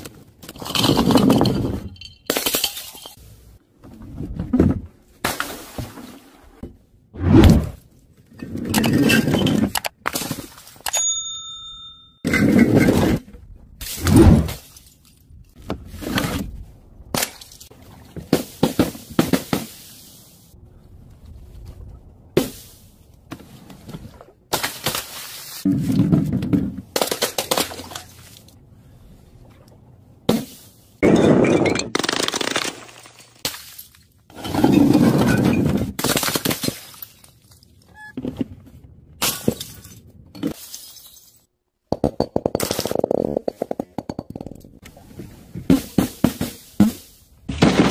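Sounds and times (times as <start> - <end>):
glass bottles smashing: 0.6 - 3.2, 31.0 - 37.3, 39.2 - 41.5
objects crashing onto paving: 45.7 - 47.9.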